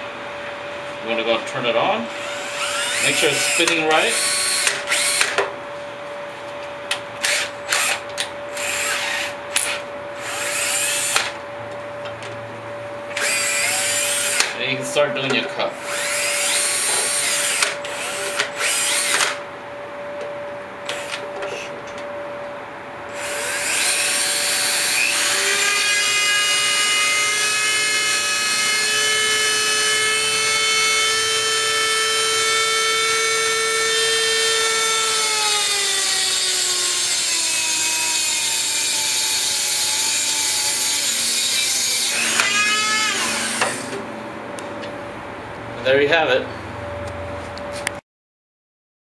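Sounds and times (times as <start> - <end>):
rotary tool grinding steel: 2.2 - 5.4, 8.6 - 11.3, 13.1 - 14.6, 15.8 - 19.4, 23.1 - 44.0.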